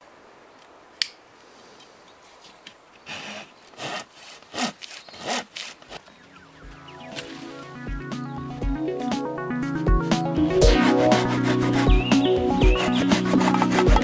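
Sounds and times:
handsaw cutting wood: 0:03.1 - 0:06.0, 0:10.6 - 0:14.0.

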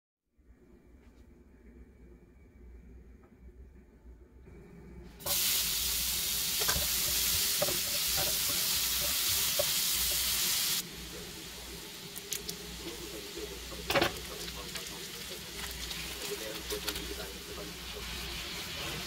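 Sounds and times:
onion sizzling in frying pan: 0:05.2 - 0:19.0.

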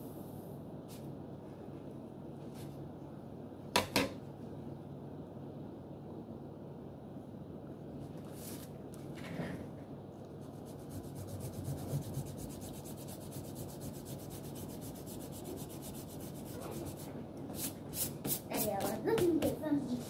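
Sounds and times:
hands rubbing paper: 0:10.3 - 0:20.0
pencil scratching on paper: 0:10.4 - 0:18.9.

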